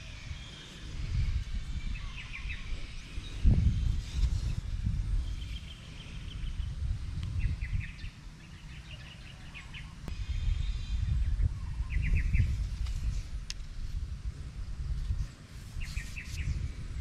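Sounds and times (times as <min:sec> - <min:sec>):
wind rumble on microphone: 0:00.0 - 0:17.0
birds chirping: 0:07.4 - 0:13.2.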